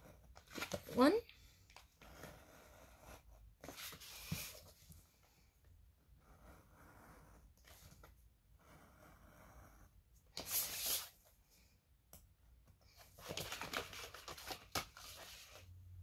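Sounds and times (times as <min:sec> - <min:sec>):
paper and cardboard rustling: 0:13.0 - 0:15.6.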